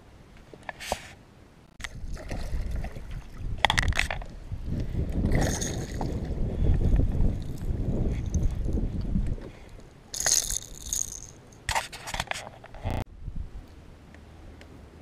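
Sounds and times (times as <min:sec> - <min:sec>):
wind rumble on microphone: 0:01.8 - 0:11.4, 0:12.7 - 0:13.9.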